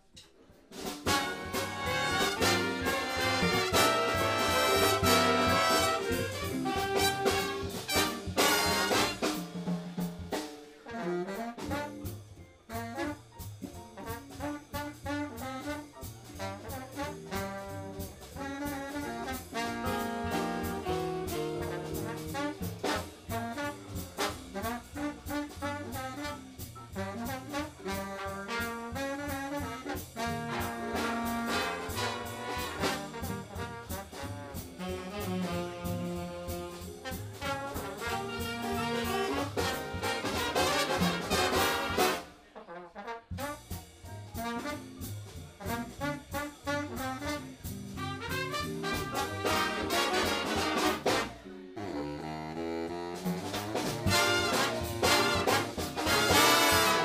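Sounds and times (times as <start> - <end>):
jazz big band playing: 0.6 - 57.0.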